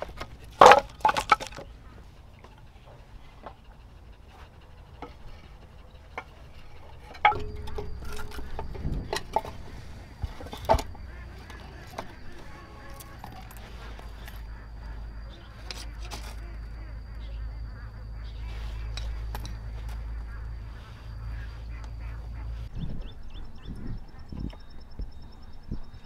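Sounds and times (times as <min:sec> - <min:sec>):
firewood knocking and clattering: 0:00.0 - 0:01.7, 0:07.1 - 0:14.6.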